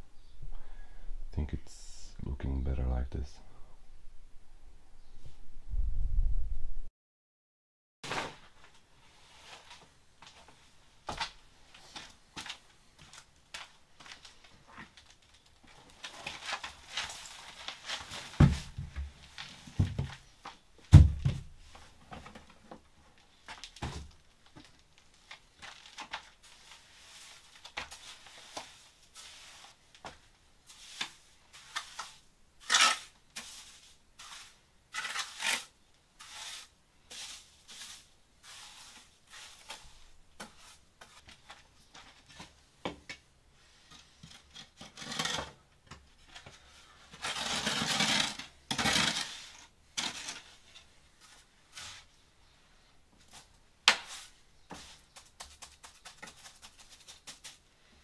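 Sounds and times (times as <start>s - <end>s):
hard objects scraping and clinking: 47.1s - 50.9s.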